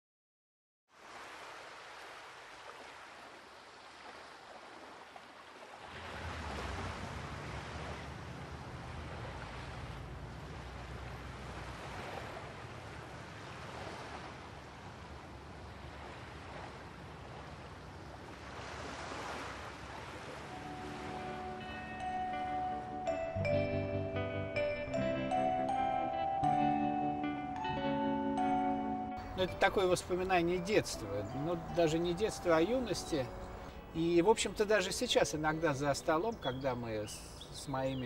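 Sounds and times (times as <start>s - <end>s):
sea waves washing in: 0.9s - 23.5s.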